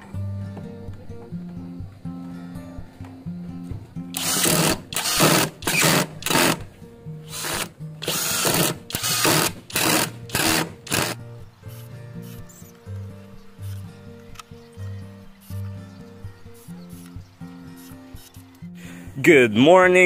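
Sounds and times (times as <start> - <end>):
cordless drill boring into wood: 4.2 - 6.6, 7.3 - 11.2.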